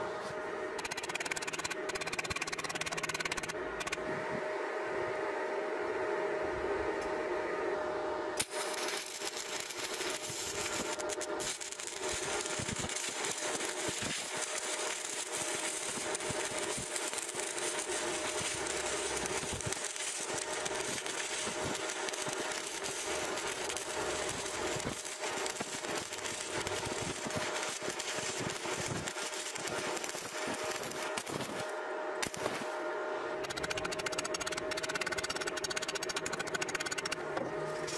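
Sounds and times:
steady hum: 0.0s - 37.9s
welding arc crackling: 0.8s - 4.0s, 8.4s - 32.8s, 33.4s - 37.2s.

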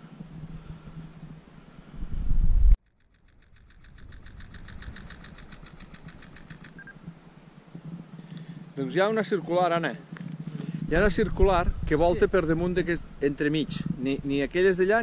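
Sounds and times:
wind buffeting microphone: 0.0s - 2.8s, 10.1s - 15.0s
fast even ticking: 2.8s - 7.0s.

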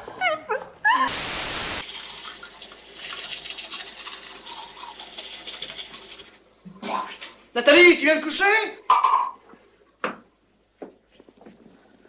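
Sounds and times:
loud hiss: 1.1s - 1.8s
toothbrush scrubbing teeth: 2.1s - 6.4s.

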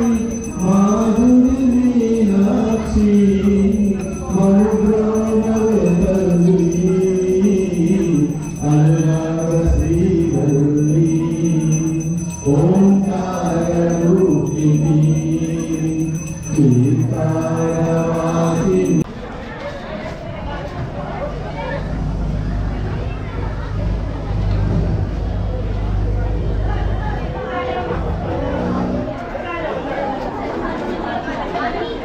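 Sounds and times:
devotional singing: 0.0s - 19.0s.

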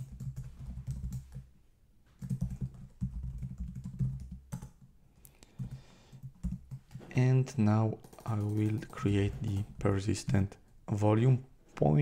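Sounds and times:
typing on computer keyboard: 0.0s - 1.5s, 2.2s - 4.9s, 5.5s - 7.0s, 7.9s - 10.4s.

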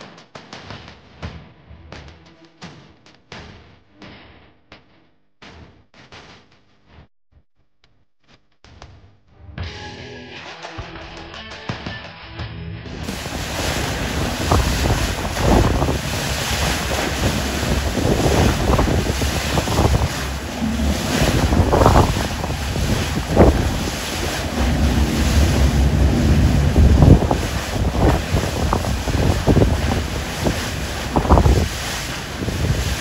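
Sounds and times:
boat hull pounding waves: 13.0s - 33.0s
rough sea splashing: 13.0s - 33.0s
wind buffeting microphone: 13.0s - 33.0s.

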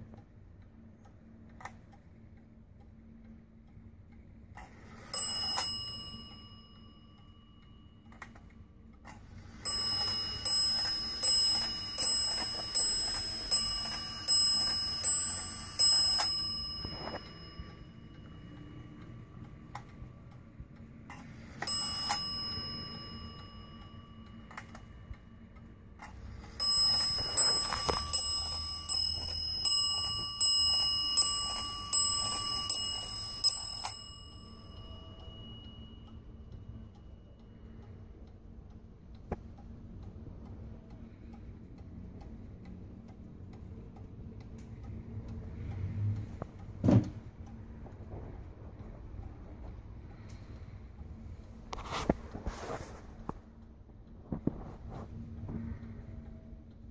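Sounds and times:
clock ticking: 0.0s - 56.9s
clock bell striking: 4.9s - 8.0s, 9.5s - 18.9s, 21.5s - 24.9s, 26.4s - 37.3s.

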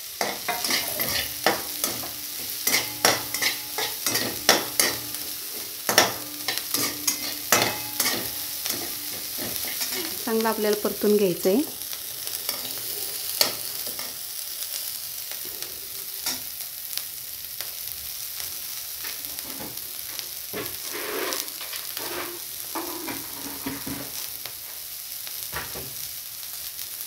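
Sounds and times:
onions sizzling in hot oil: 0.0s - 27.0s
spatula scraping and knocking pan: 0.2s - 10.8s, 19.2s - 24.2s.

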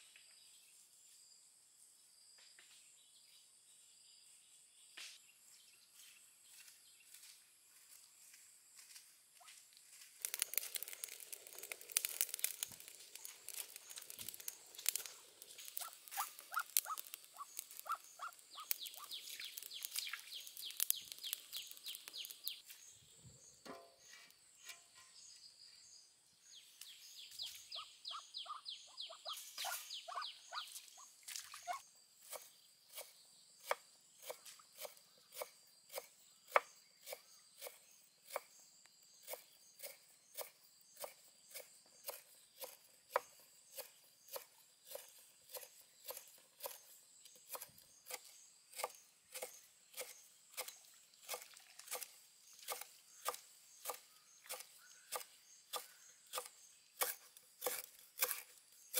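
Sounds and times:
wood fire crackling: 9.6s - 22.7s.

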